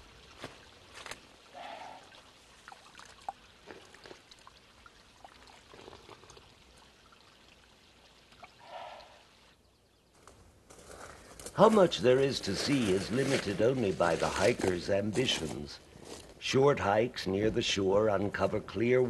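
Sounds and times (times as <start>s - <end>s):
small stream trickling: 0.0s - 10.2s.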